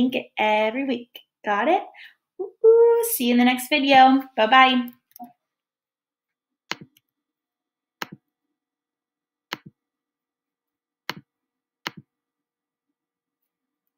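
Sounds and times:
computer mouse clicks: 6.7 - 7.1, 9.5 - 9.8, 11.0 - 12.1.

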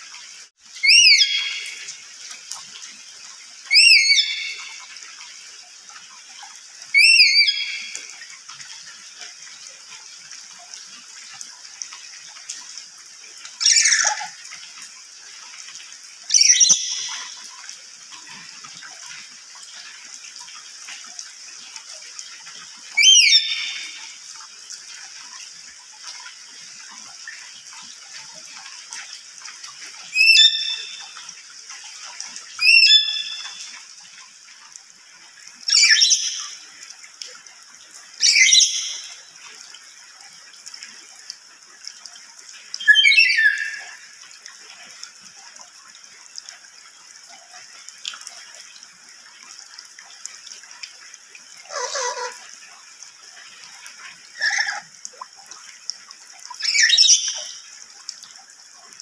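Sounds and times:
parrot screeching calls: 0.8 - 1.6, 3.7 - 4.6, 7.0 - 7.8, 13.6 - 14.3, 23.0 - 23.8, 30.2 - 30.9, 32.6 - 33.4, 35.7 - 36.4, 42.8 - 43.8, 51.7 - 52.4, 54.4 - 54.8, 56.6 - 57.3.

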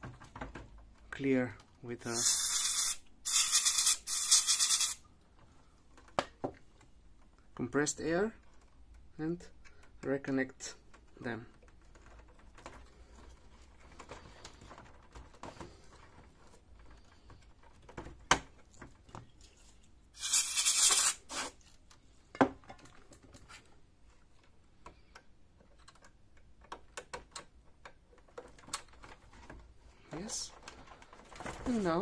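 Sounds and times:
compressed air hissing: 2.2 - 5.0, 20.2 - 21.6
clicks and taps on connectors: 24.4 - 29.6.

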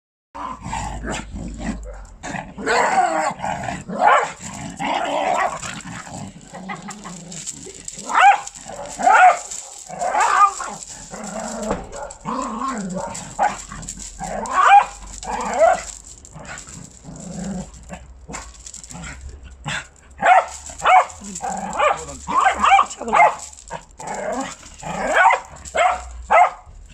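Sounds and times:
small dog barking: 2.6 - 4.4, 8.0 - 10.8, 11.9 - 13.7, 14.3 - 15.8, 20.2 - 23.4, 25.0 - 26.7.

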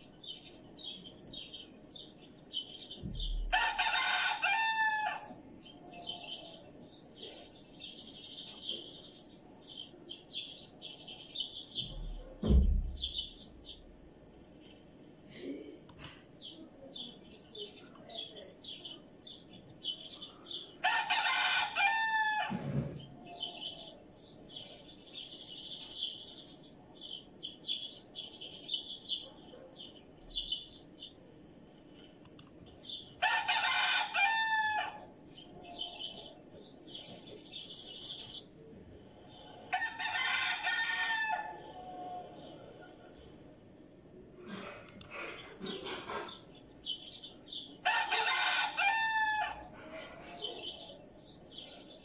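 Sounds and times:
rooster crowing: 3.4 - 5.4, 20.8 - 22.7, 33.2 - 35.1, 39.7 - 42.8, 47.8 - 50.7.

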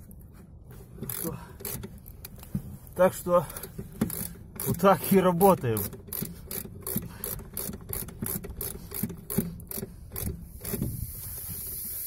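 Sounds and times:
wrench rasping on nut: 1.0 - 2.5, 3.4 - 11.9
steady high hiss: 10.6 - 12.0.

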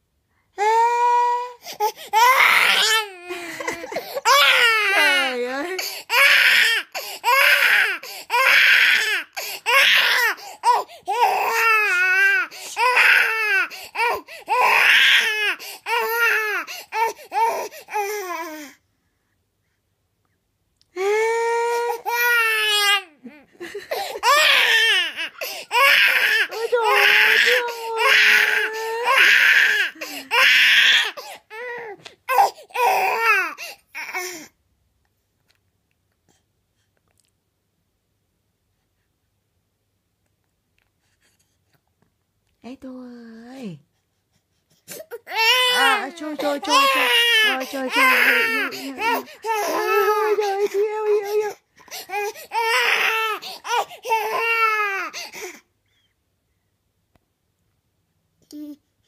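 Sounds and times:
infant crying: 0.6 - 18.8, 21.0 - 34.5, 44.9 - 55.6.

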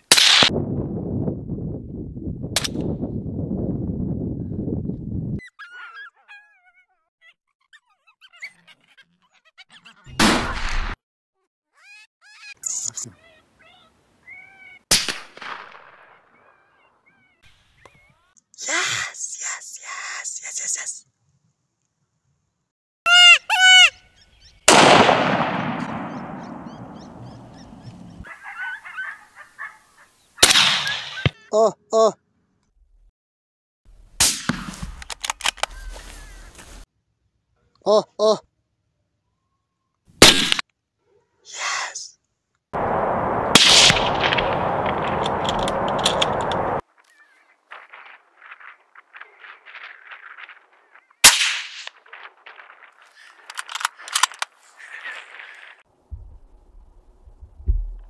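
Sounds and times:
rifle shot: 0.1 - 0.6, 10.2 - 11.0, 14.9 - 16.2, 24.7 - 28.1, 30.4 - 31.3, 34.2 - 34.7, 40.2 - 40.6, 42.8 - 46.8, 51.2 - 53.0
faint chirping calls: 5.4 - 10.1, 23.9 - 24.7, 26.0 - 30.4
wild canid yelping and whining: 5.4 - 10.1, 11.7 - 14.9, 16.1 - 18.4, 26.1 - 30.3.

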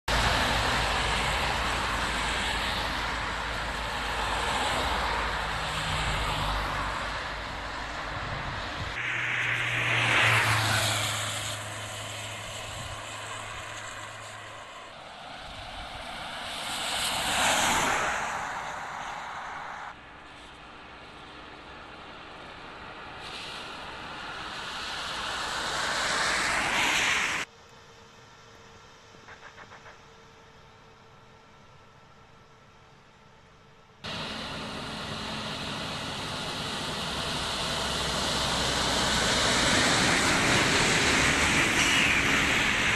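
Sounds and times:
tyre hiss on wet road: 0.1 - 27.6, 34.0 - 42.9
low engine hum: 27.4 - 42.9.

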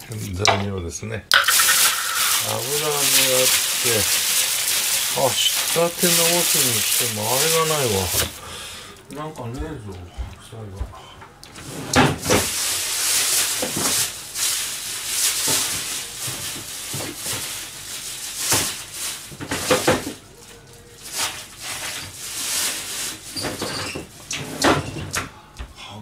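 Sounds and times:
packaging rustling: 1.3 - 9.1, 12.2 - 23.7.

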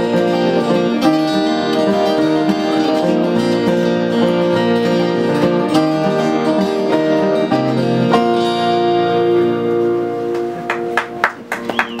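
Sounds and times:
acoustic guitars strumming: 0.0 - 12.0
people clapping: 10.3 - 12.0.

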